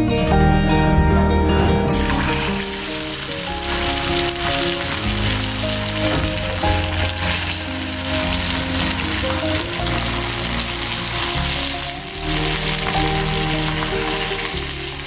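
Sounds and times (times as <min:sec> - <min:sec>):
background music: 0:00.0 - 0:15.0
fish sizzling in hot oil: 0:01.9 - 0:15.0.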